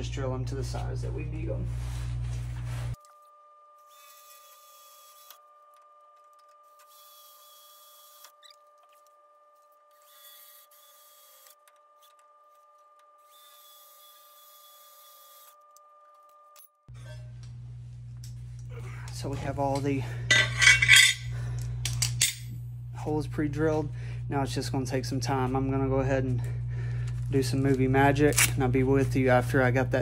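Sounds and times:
faint cordless drill: 3.8 - 5.4, 6.6 - 9.0, 9.9 - 12.2, 13.2 - 15.6
steady faint hum: 16.9 - 30.0.

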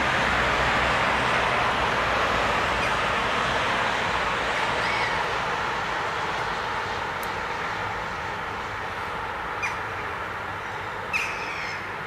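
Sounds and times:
city traffic hum: 0.0 - 12.0
gull calls: 10.6 - 11.9.

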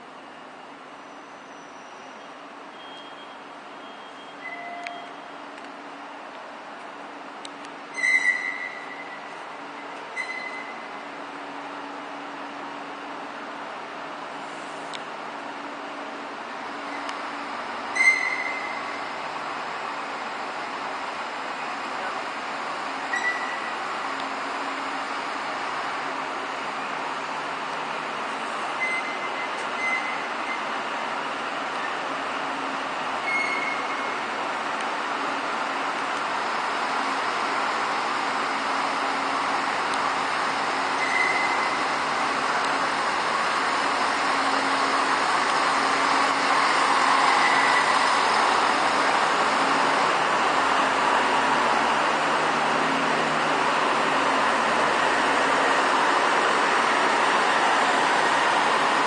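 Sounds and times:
high wheel squeal: 1.0 - 5.3, 7.9 - 11.0, 16.8 - 19.4, 23.0 - 24.0, 28.7 - 30.8, 33.2 - 34.3, 40.2 - 51.8
train rumbling: 4.4 - 59.0.

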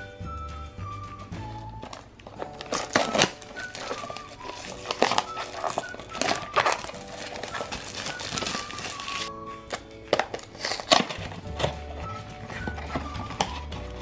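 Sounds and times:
quiet background music: 0.0 - 14.0
cardboard box crinkling and scraping: 2.3 - 9.3, 10.1 - 14.0.

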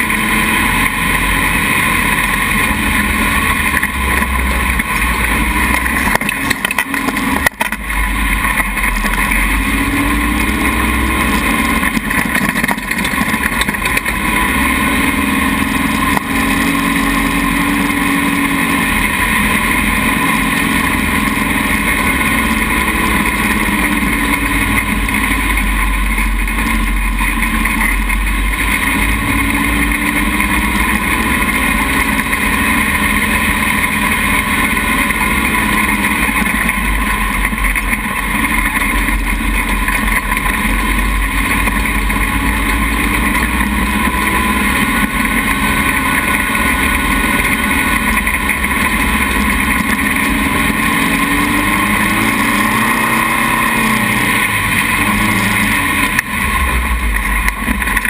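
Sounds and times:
dune buggy engine revving: 0.0 - 58.0.

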